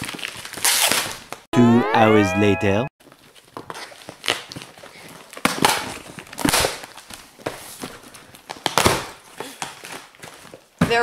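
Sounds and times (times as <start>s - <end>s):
tape and cardboard ripping: 0.0s - 1.4s.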